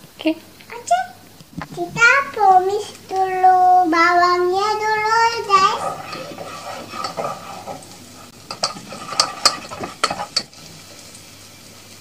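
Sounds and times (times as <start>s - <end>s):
faint steady hiss: 0.0s - 12.0s
spatula scraping a cooking pot: 4.6s - 10.7s.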